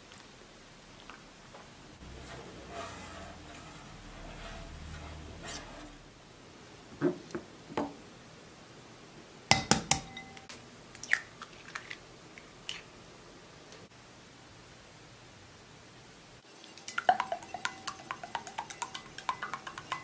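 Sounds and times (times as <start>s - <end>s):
glass ringing: 9.5s - 10.5s, 16.9s - 20.0s.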